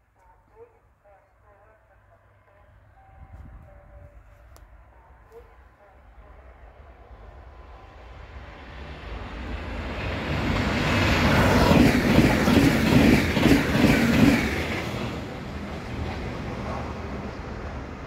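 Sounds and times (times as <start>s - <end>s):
train rumbling past: 6.0s - 18.0s.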